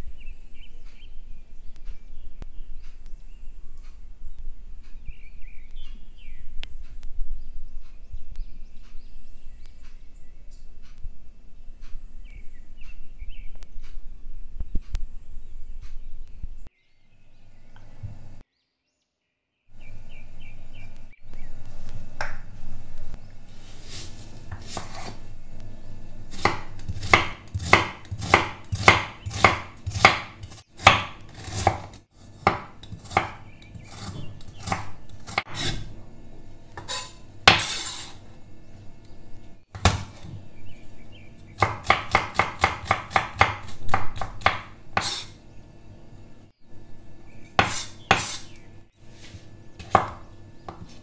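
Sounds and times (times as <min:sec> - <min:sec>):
knife chopping on wooden board: 0:24.5 - 0:25.2, 0:26.3 - 0:35.9, 0:36.8 - 0:37.8, 0:39.7 - 0:40.3, 0:41.6 - 0:45.3, 0:47.6 - 0:48.5, 0:49.8 - 0:51.0.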